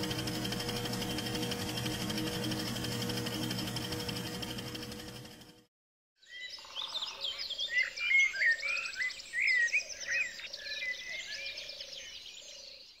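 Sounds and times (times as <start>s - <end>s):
low pulsing trill: 0.0s - 5.7s
birds singing: 6.2s - 13.0s.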